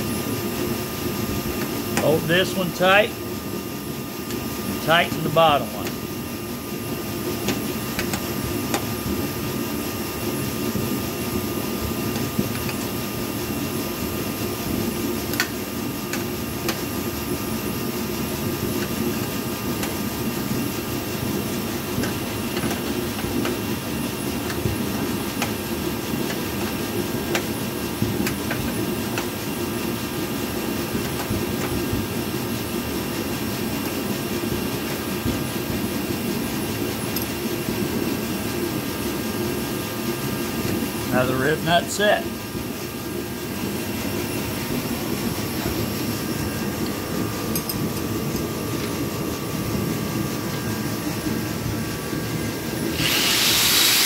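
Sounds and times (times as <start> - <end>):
low mechanical hum: 0.0 - 54.0.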